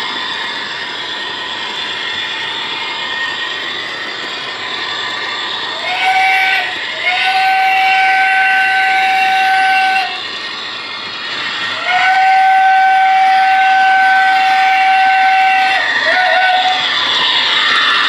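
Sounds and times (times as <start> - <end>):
model train running noise: 0.0 - 18.0
model train horn blasts: 5.8 - 10.2, 11.8 - 16.9.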